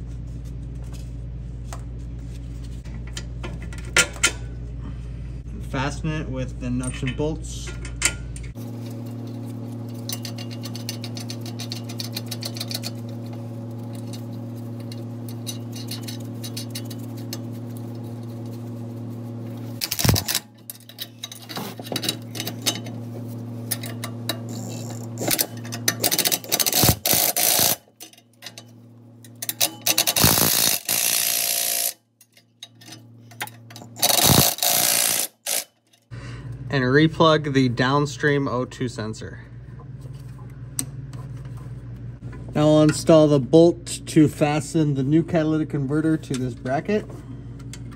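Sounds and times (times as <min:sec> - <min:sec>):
steady hum: 0:00.0 - 0:47.9
bursts of tool noise: 0:19.5 - 0:22.7, 0:24.4 - 0:28.0, 0:29.6 - 0:32.0, 0:33.9 - 0:35.8
ratchet ticking: 0:24.6 - 0:27.8, 0:29.4 - 0:32.0.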